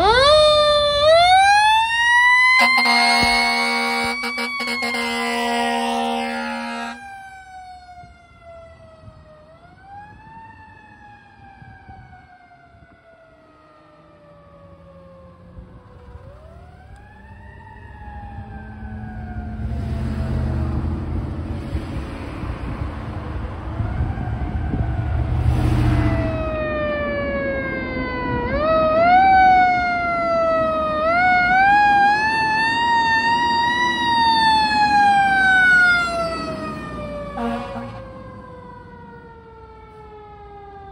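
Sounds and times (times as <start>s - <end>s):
fire engine siren wailing: 0.0s - 40.9s
low vehicle rumble: 14.3s - 40.9s.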